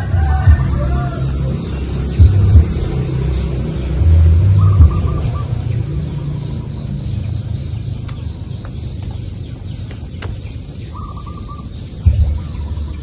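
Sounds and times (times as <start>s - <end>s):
low rumble: 0.0s - 13.0s
small birds chirping: 0.2s - 13.0s
bird trill: 4.5s - 13.0s
sharp clicks: 8.0s - 10.5s.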